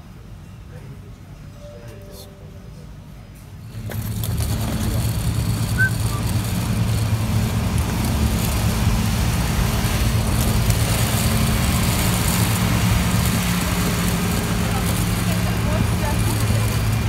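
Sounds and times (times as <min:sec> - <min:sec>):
deep machinery drone with hiss: 0:03.6 - 0:17.0.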